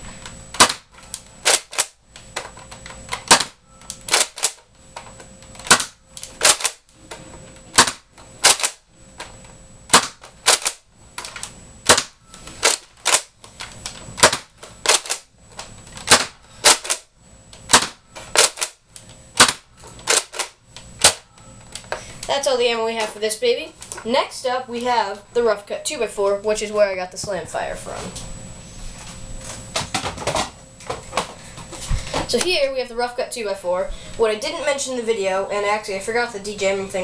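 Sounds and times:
toy blaster clacks and pops: 1.4 - 1.9, 3.2 - 4.6, 5.6 - 6.8, 7.8 - 8.8, 9.9 - 13.3, 14.2 - 15.2, 17.7 - 18.8.

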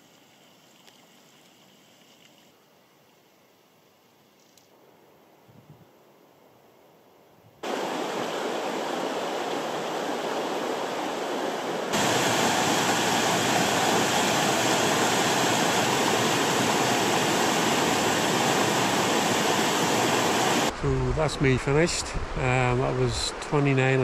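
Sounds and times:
river rapids rushing: 7.6 - 20.7.

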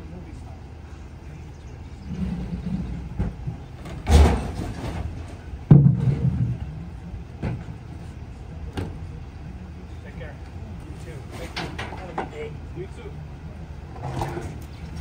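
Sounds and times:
garbage truck idling: 0.0 - 15.0
heavy bang: 2.8 - 6.8
clattering crash of trash: 3.9 - 6.6.

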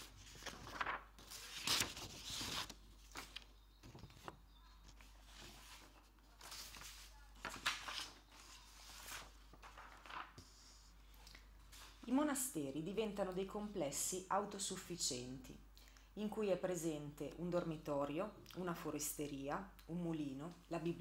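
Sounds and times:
scratchy rustling and handling: 0.0 - 10.9.

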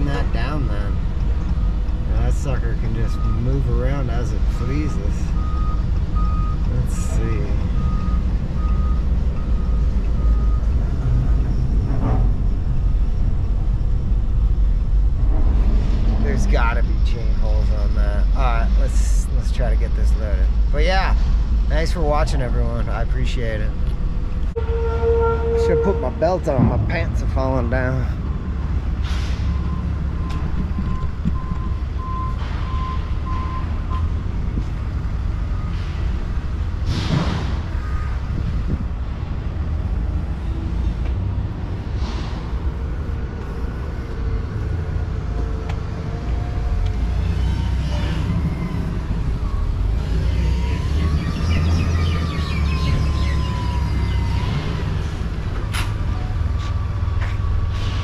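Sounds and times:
reversing alarm beeping: 0.0 - 11.6, 29.5 - 36.2, 45.2 - 55.1
engine rumble: 0.0 - 58.0.

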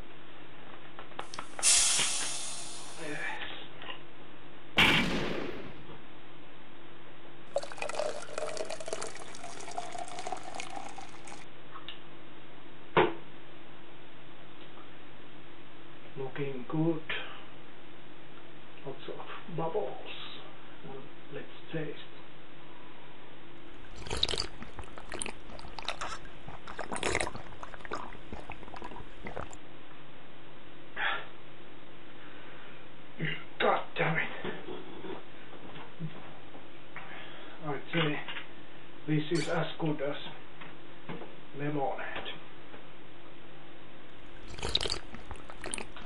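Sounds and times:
man gulping a drink: 1.2 - 3.2, 7.5 - 11.5, 23.7 - 29.6, 44.2 - 46.0
beer pouring into glass: 1.3 - 3.1, 7.5 - 11.5, 23.8 - 29.6, 44.3 - 46.0
rising tone of filling glass: 7.6 - 11.4.

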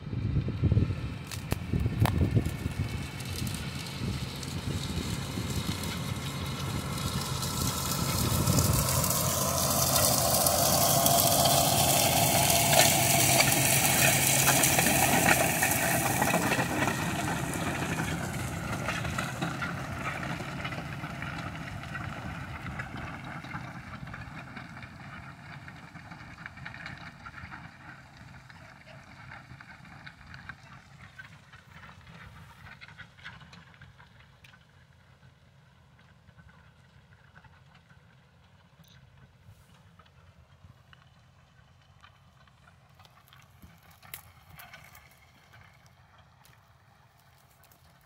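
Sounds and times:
tractor diesel engine under load: 0.0 - 48.0
soil bar hissing and clattering: 2.6 - 20.8.

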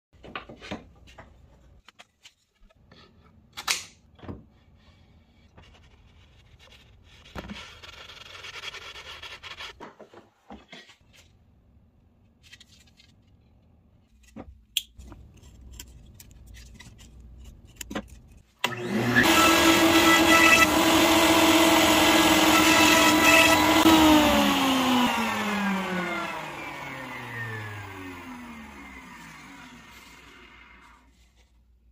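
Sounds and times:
router motor whining: 18.6 - 30.9.

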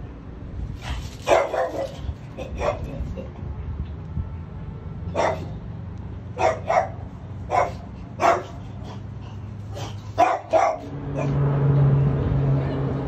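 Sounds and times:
dog barking: 1.2 - 3.1, 5.1 - 5.5, 6.4 - 9.0, 9.7 - 11.4.

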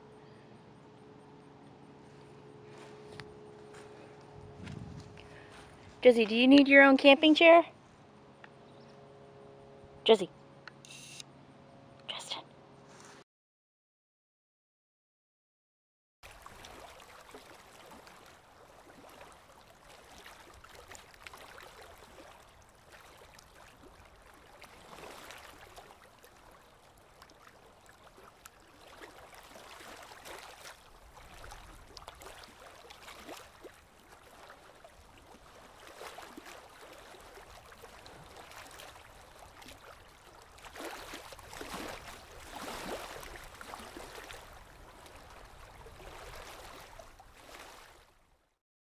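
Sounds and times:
river water lapping on rocks: 2.6 - 6.9, 16.2 - 48.2.

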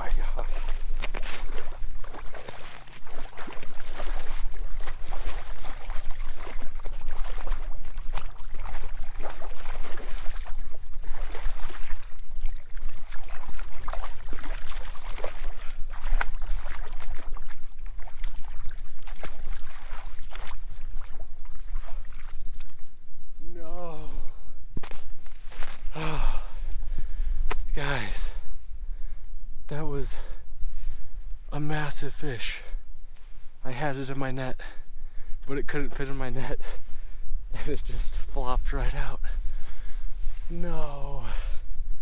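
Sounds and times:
fish thrashing in water: 0.5 - 22.9.

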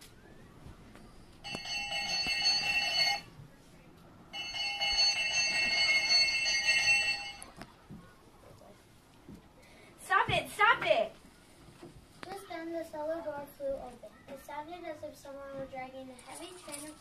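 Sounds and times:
bells ringing: 1.4 - 3.4, 4.3 - 7.6.

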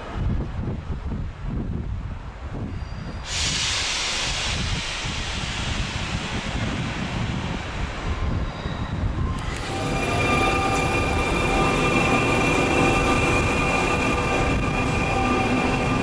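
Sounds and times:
wind rumble on microphone: 0.0 - 10.0
train air hiss: 3.2 - 16.0.

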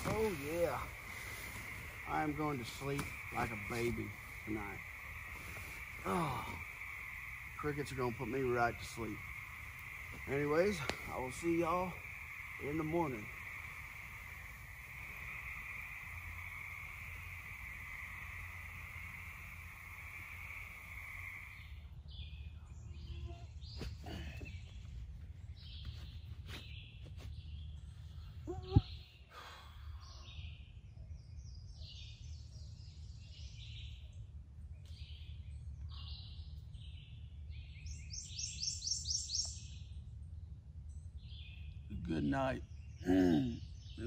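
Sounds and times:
crickets chirring: 0.0 - 22.2
woodland birdsong: 0.0 - 44.0.

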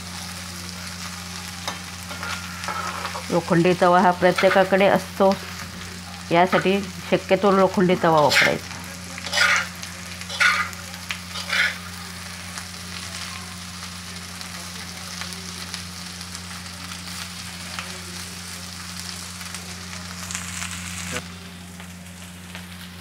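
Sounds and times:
potatoes sizzling in oil: 0.0 - 23.0
metal spatula scraping iron pan: 2.1 - 3.3, 4.3 - 4.9, 7.4 - 11.9.

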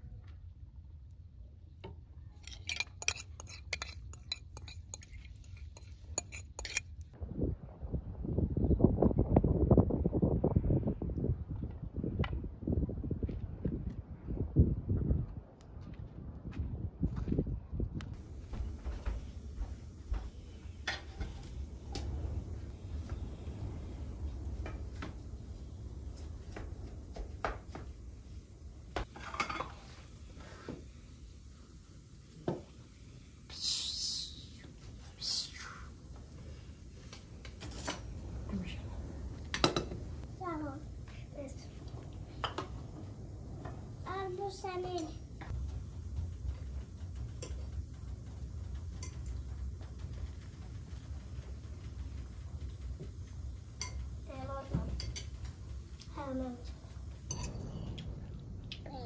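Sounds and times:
dishes and utensils clinking: 2.4 - 7.0, 29.0 - 30.0, 39.5 - 40.0, 53.8 - 54.1, 54.8 - 55.5, 57.2 - 58.0
steady low rumble: 5.8 - 29.4, 34.5 - 59.0.

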